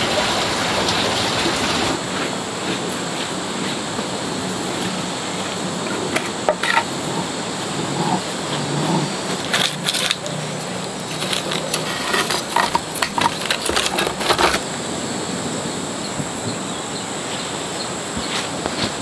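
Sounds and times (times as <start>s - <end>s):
steady background hiss: 0.0s - 19.0s
firewood knocking and crackling: 4.7s - 8.2s, 11.0s - 14.6s.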